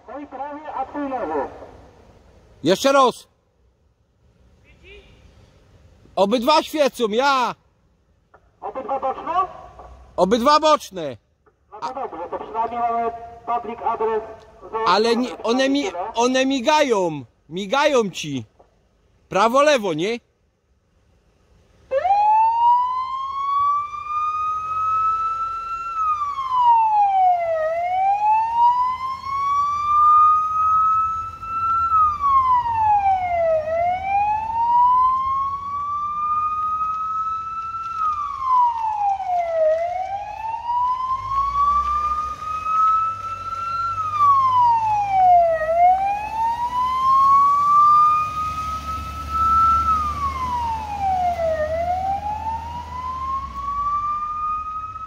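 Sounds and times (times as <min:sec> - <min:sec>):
electronic siren wailing: 0:21.9 - 0:55.0.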